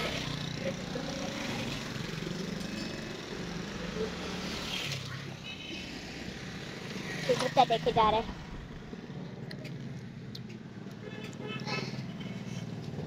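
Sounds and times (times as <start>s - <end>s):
motorcycles riding past: 0.0s - 10.2s.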